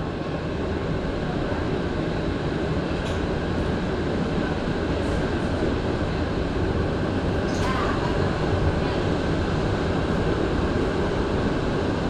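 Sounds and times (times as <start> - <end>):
train rumbling: 0.0 - 12.0.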